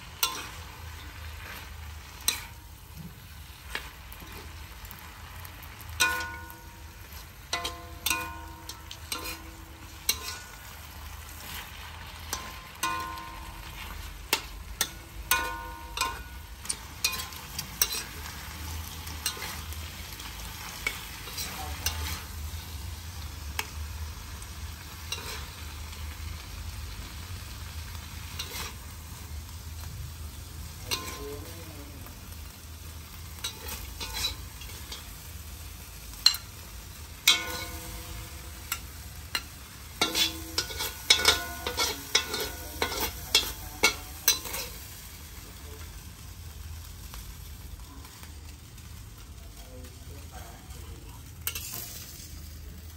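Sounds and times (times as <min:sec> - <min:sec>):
metal spatula scraping a pan: 0:00.0 - 0:23.8, 0:24.8 - 0:26.0, 0:28.1 - 0:29.2, 0:30.7 - 0:31.6, 0:33.2 - 0:45.0, 0:51.4 - 0:52.3
food sizzling in a wok: 0:00.0 - 0:52.9.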